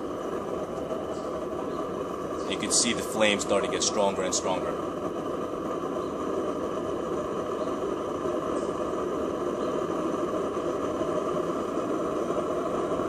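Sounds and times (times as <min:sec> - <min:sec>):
stove blower whirring: 0:00.0 - 0:13.0.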